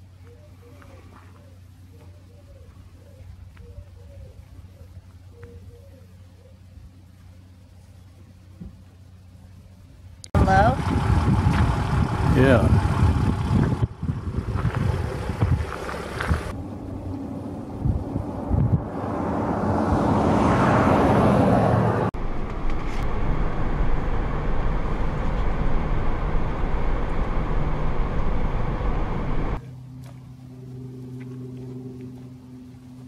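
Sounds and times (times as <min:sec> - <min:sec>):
low hum: 0:00.0 - 0:33.0
vehicle road and engine noise: 0:00.0 - 0:33.0
wind buffeting microphone: 0:10.4 - 0:20.2.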